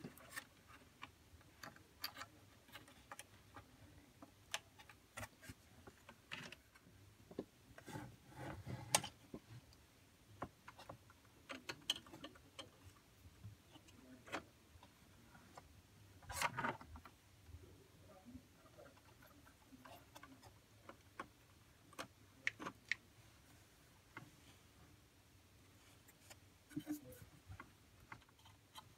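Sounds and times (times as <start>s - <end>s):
wires and connectors clicking: 10.4s - 13.0s.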